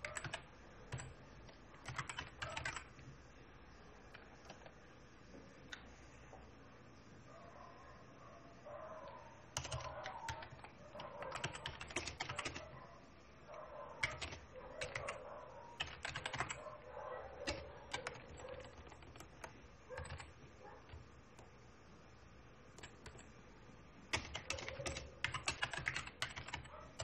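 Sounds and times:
typing on a computer keyboard: 0.0 - 3.0, 4.1 - 4.8, 9.6 - 12.8, 14.0 - 15.2, 15.8 - 21.6, 22.7 - 23.4, 24.1 - 27.0.

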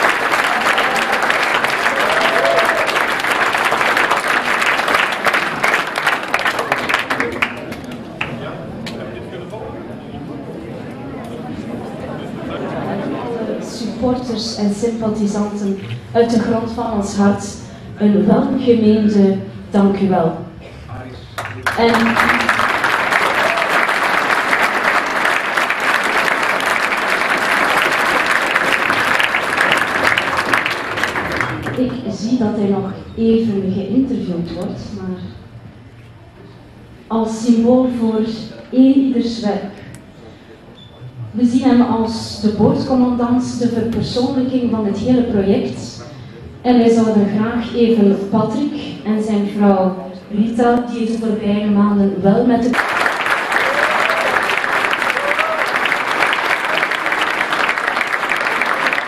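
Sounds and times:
audience applauding: 0.0 - 8.6, 21.4 - 32.0, 52.7 - 59.0.

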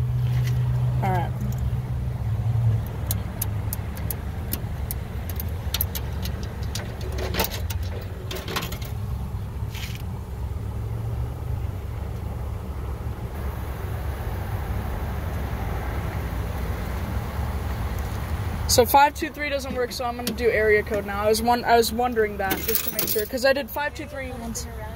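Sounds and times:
steady low hum: 8.0 - 21.3.

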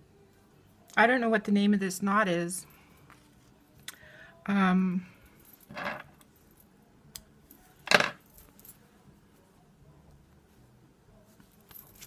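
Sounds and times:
bangles clinking: 11.4 - 12.0.

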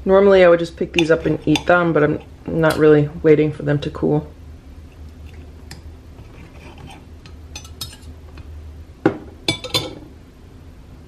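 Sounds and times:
knife and fork clinking on plate: 7.6 - 8.1.

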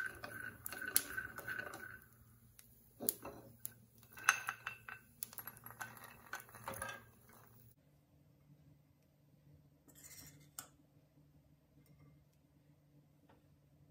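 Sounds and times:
pan and utensils clinking: 0.0 - 2.2, 3.0 - 7.7.

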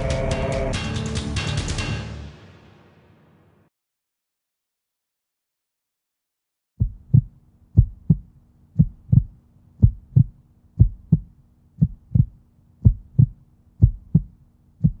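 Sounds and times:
faint steady hum: 6.8 - 15.0
heartbeat thumps: 6.8 - 15.0.

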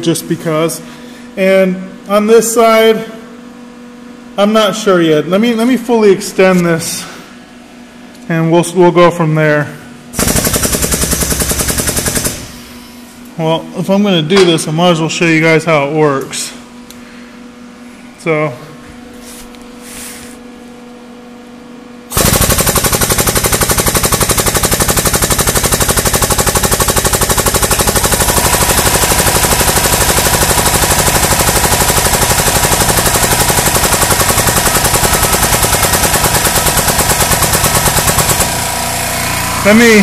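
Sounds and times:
air pump chattering: 10.2 - 12.8, 22.1 - 40.0.

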